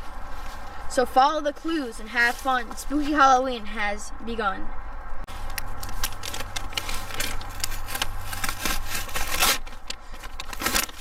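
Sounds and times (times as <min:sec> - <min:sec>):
scraping and rustling handling noise: 0:01.6 - 0:03.3, 0:05.3 - 0:11.0.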